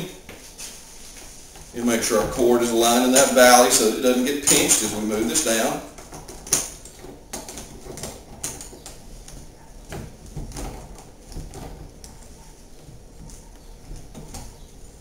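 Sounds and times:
plastic parts clicking and knocking: 0:06.0 - 0:14.9.

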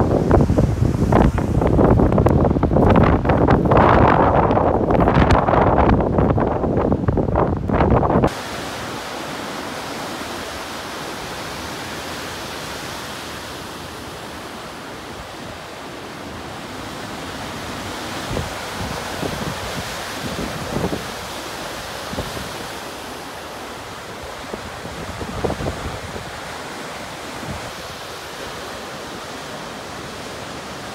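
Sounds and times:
wind buffeting microphone: 0:00.0 - 0:10.8, 0:16.4 - 0:29.4
surf breaking and washing ashore: 0:00.0 - 0:30.9.

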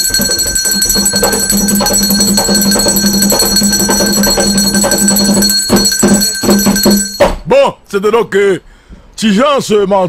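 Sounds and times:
pulsing beat: 0:00.0 - 0:07.3
bell-like ringing tones: 0:00.0 - 0:07.4.

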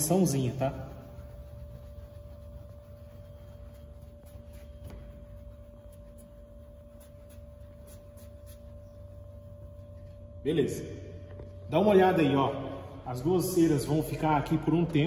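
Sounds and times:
pad scrubbing car paint: 0:00.0 - 0:10.2
steady hum: 0:00.0 - 0:15.0.

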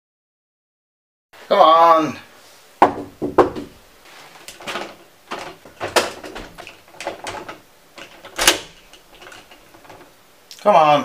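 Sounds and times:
door rattling in its frame: 0:02.8 - 0:10.2
door handle latch clacking: 0:04.5 - 0:10.1.

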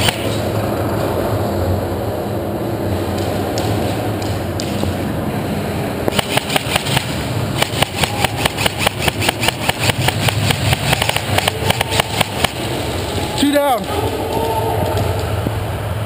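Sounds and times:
steady low hum: 0:00.0 - 0:16.0
rapid airsoft gunshots: 0:06.1 - 0:12.7.

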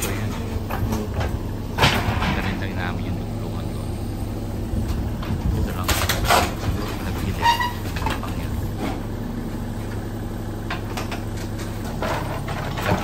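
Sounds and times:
demolition knocks: 0:00.0 - 0:03.2, 0:04.7 - 0:09.2, 0:10.7 - 0:13.0
excavator diesel engine running: 0:00.0 - 0:13.0.

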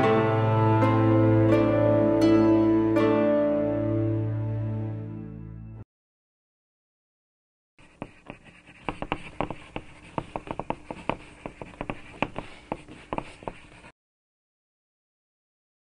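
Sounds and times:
pencil sketching on paper: 0:07.8 - 0:13.9.

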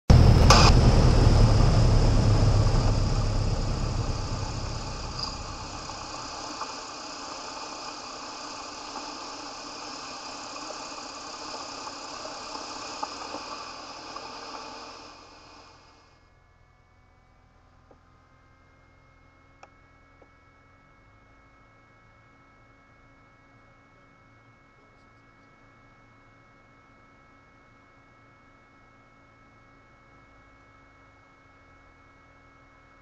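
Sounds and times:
steady whining tones: 0:00.1 - 0:16.1
aircraft engine and airflow drone: 0:00.1 - 0:17.7.

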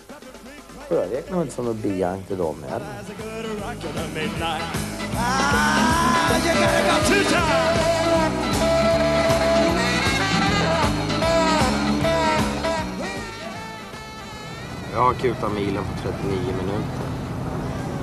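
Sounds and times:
person singing: 0:02.8 - 0:13.4
steady bass beat: 0:03.6 - 0:13.4.

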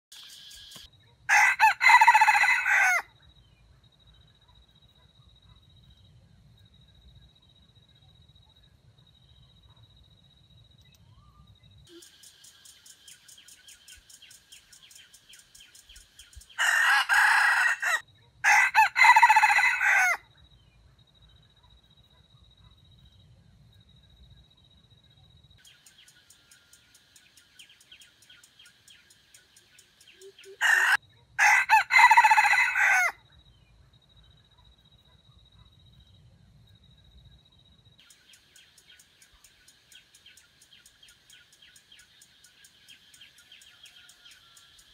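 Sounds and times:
insect trill: 0:00.1 - 0:44.9
rooster crowing: 0:01.3 - 0:03.1, 0:16.5 - 0:20.2, 0:30.4 - 0:33.2.

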